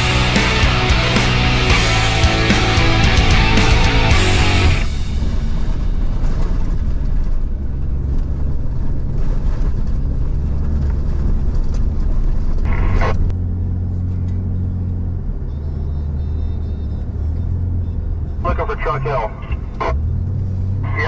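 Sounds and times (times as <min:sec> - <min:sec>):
truck engine droning: 0:00.0 - 0:21.0.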